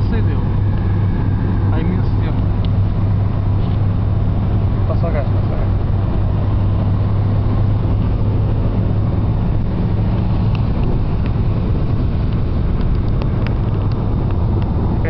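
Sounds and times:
car engine drone: 0.0s - 15.0s
tyre and wind noise: 5.8s - 15.0s.

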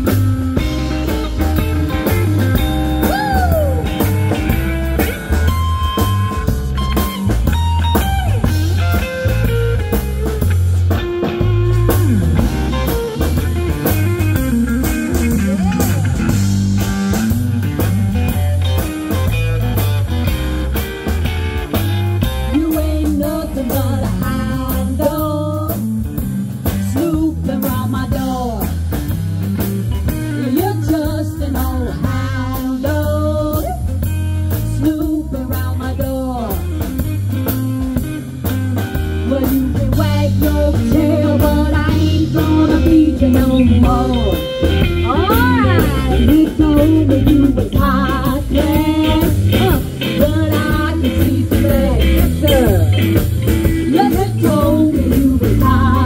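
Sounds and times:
electric guitar lead with bends: 0.0s - 56.0s
rock and roll music: 0.0s - 56.0s.

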